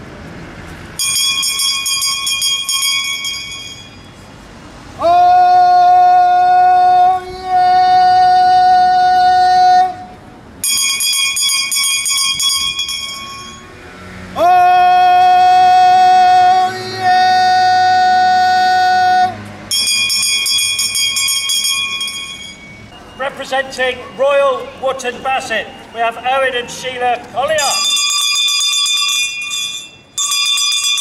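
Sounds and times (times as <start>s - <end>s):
handbell ringing: 1.0s - 4.2s, 10.6s - 13.7s, 19.7s - 22.9s, 27.6s - 31.0s
person's long sung cries: 5.0s - 10.1s, 14.4s - 19.4s.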